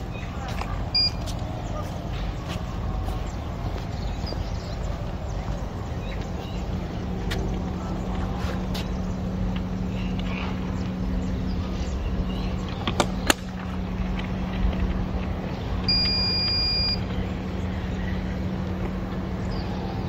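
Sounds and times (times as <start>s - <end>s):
low hum: 0.0s - 20.0s
high electronic beep: 1.0s - 1.2s, 15.9s - 17.0s.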